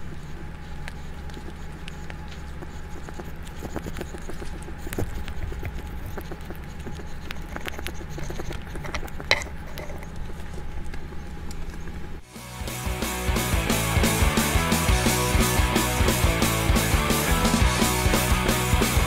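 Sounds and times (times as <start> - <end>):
rat chewing and gnawing food: 0.0 - 12.3
steady low hum: 0.0 - 12.3.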